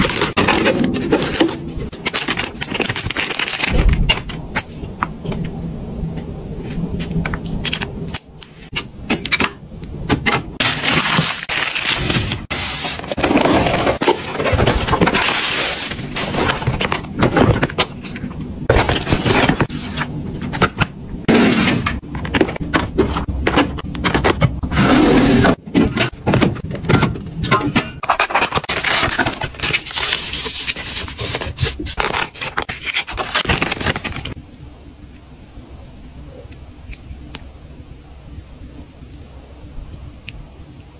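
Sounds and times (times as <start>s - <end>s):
cardboard scraping and rustling: 10.6s - 18.1s.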